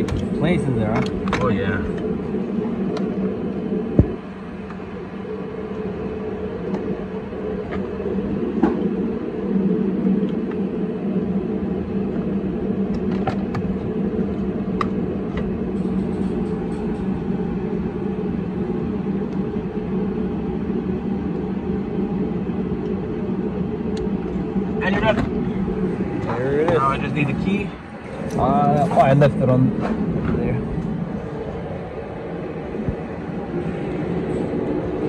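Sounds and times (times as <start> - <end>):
low machine hum: 0.0 - 35.0.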